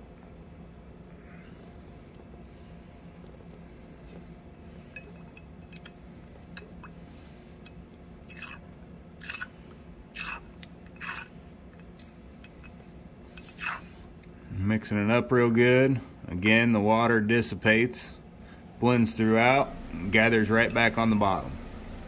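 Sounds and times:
steady low hum: 0.0 - 22.0
liquid swishing in shaken jar: 10.2 - 12.8, 13.4 - 13.9.

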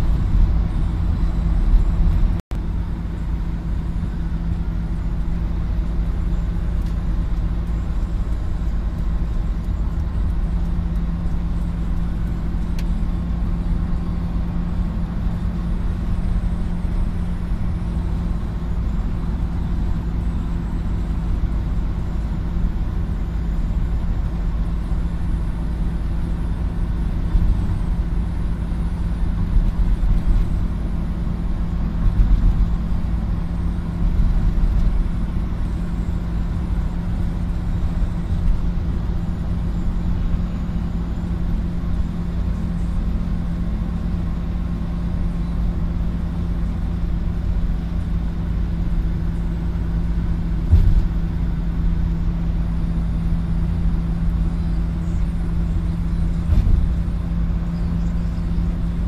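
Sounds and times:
constant cabin hum: 0.0 - 59.0
tyres and engine rumble: 0.0 - 59.0.

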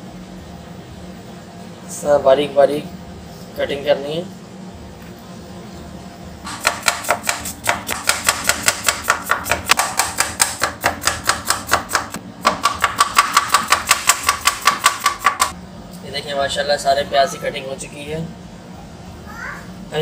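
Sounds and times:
knife chopping on wooden board: 6.5 - 15.5.

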